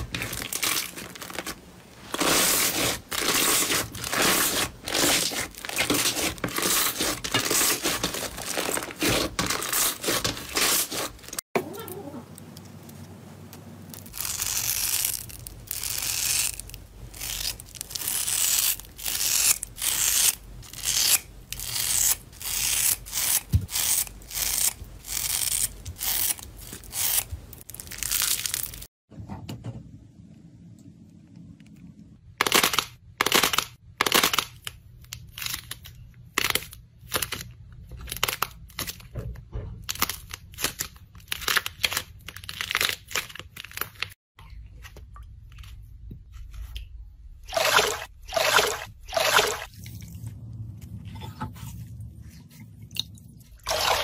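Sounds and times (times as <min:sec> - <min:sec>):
slime crunching and crackling: 0:00.0 - 0:11.4, 0:14.0 - 0:28.9, 0:39.8 - 0:44.2.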